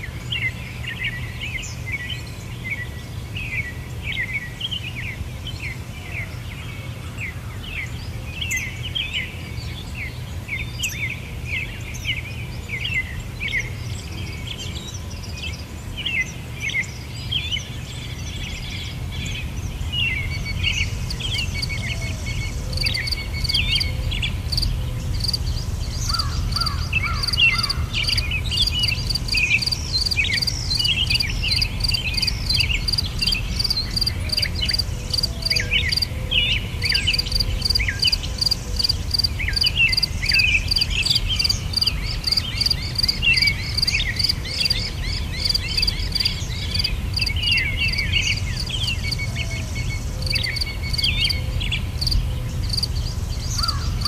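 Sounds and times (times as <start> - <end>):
small birds chirping: 0.0 - 54.0
insect high-pitched pulsing trill: 22.8 - 23.9, 26.0 - 36.1, 36.9 - 44.8, 45.4 - 47.4, 50.3 - 51.4, 52.0 - 52.9.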